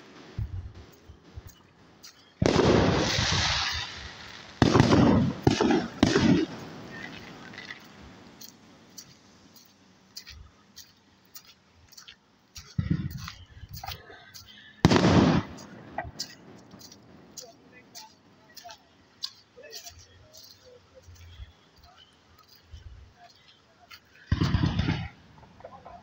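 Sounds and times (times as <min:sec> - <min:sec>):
fireworks pops and crackles: 0:00.0 - 0:26.0
distant fireworks bangs with echo: 0:02.4 - 0:08.4, 0:14.8 - 0:16.8, 0:24.3 - 0:25.7.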